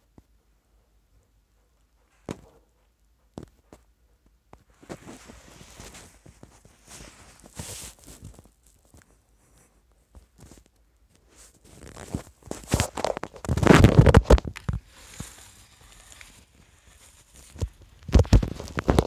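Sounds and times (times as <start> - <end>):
rustling scrape on carpet: 4.7 - 9.8, 10.4 - 19.0.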